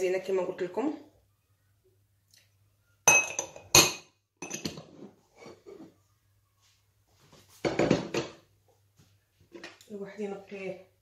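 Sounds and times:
glass clinking against metal bowl: 3.1 - 4.8.

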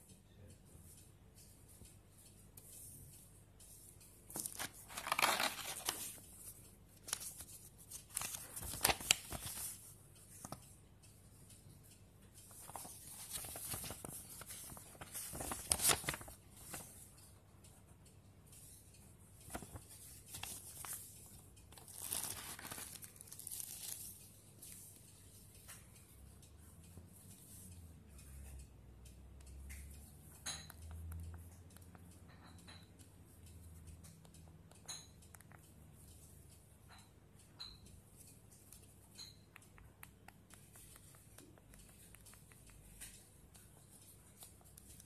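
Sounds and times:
paper and plastic rustling: 4.3 - 10.5, 12.5 - 17.0, 19.5 - 21.1, 21.7 - 24.1.

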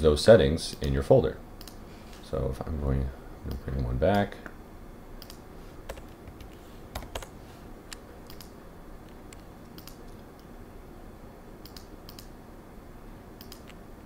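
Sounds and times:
computer keyboard typing: 5.2 - 7.4, 9.3 - 10.2, 13.4 - 13.8.

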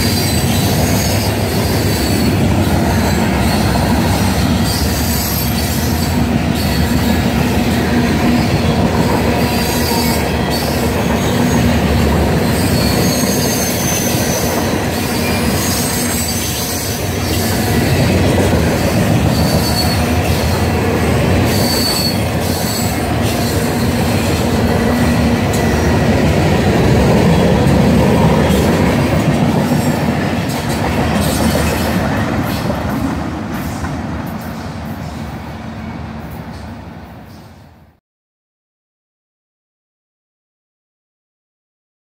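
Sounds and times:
high wheel squeals: 0.0 - 7.2, 9.4 - 26.0
train wheels rumbling on rail: 0.0 - 38.0.

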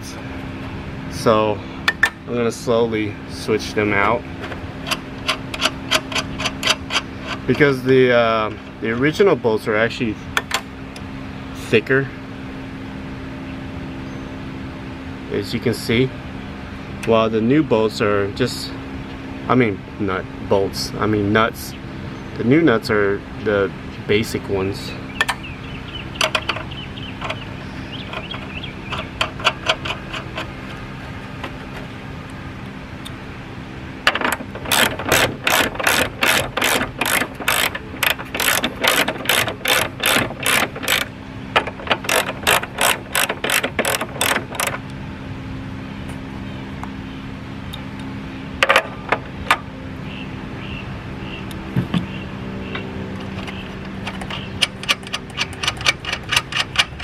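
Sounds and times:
steady low hum: 0.0 - 57.0
ratchet wrench clicking: 4.8 - 7.6, 28.0 - 30.6, 34.1 - 44.8, 53.4 - 57.0.

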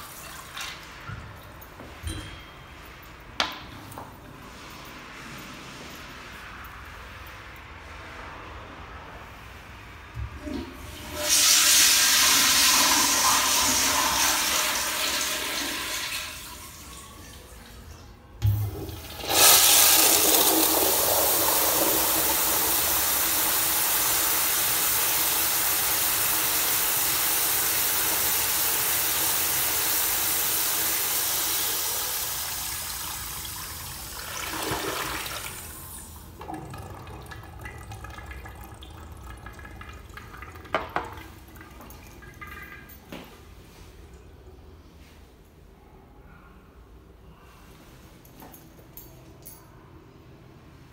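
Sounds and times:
toilet flush water rushing: 10.4 - 17.0, 18.4 - 42.9.

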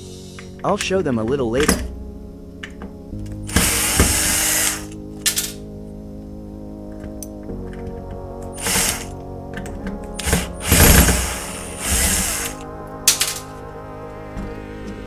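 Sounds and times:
background music: 0.0 - 15.0
angle grinder motor whirring: 3.5 - 5.0, 8.6 - 9.1, 10.2 - 12.6.

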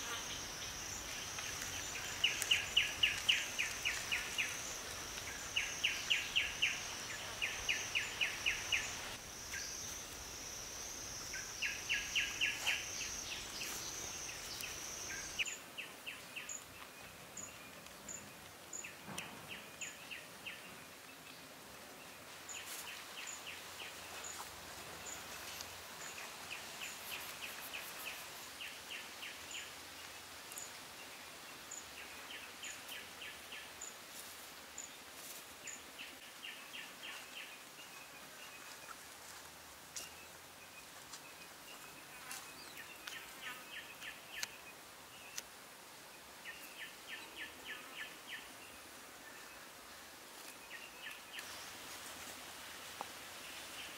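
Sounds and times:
high-pitched insect buzz: 0.0 - 15.5.

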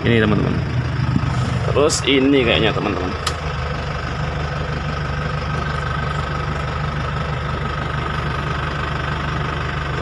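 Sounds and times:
air conditioning fan blowing: 0.0 - 3.6
diesel engine idling: 0.0 - 10.0.

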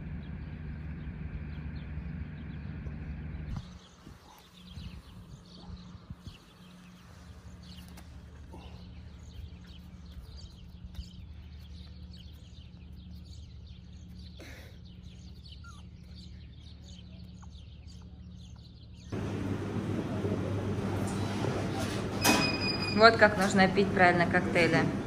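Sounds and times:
small birds chirping: 0.0 - 21.8
steady low hum: 0.0 - 25.0
dense background noise: 19.1 - 25.0.

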